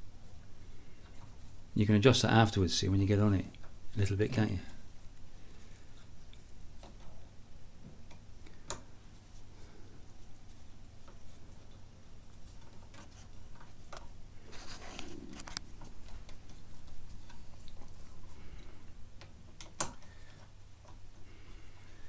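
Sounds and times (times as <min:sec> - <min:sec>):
short rustle: 0:08.6 - 0:22.0.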